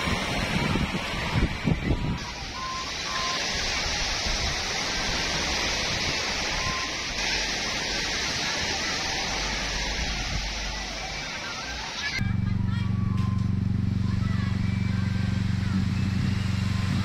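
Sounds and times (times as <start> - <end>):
surf breaking on sandy beach: 0.0 - 12.3.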